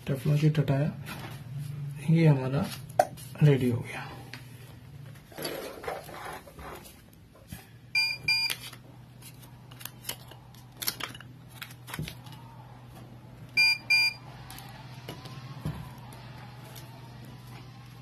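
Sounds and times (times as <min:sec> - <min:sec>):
short electronic beeps: 0:13.6 - 0:14.2.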